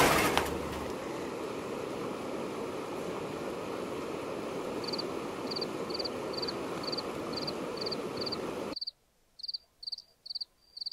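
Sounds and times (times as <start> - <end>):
cricket chirping: 4.8 - 10.9.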